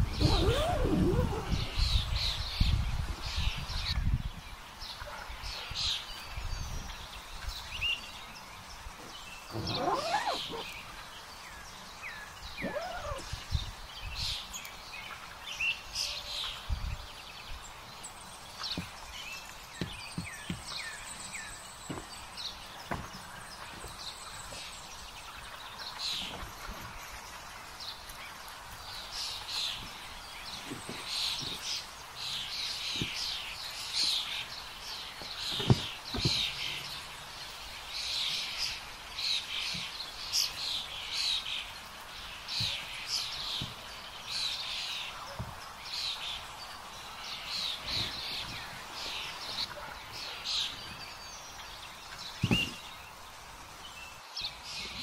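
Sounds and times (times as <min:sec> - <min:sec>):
birds chirping and singing: 0:00.0 - 0:55.0
dull thumps: 0:52.4 - 0:52.9.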